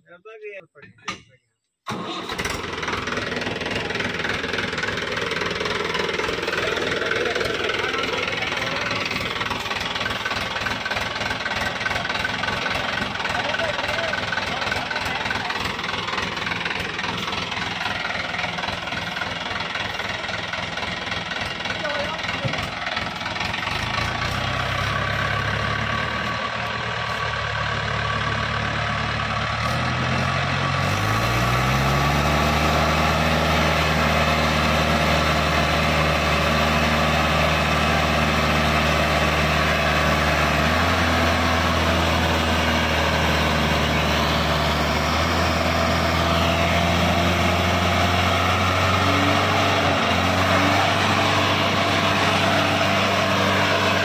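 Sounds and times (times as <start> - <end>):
tractor diesel engine running: 1.9 - 54.0.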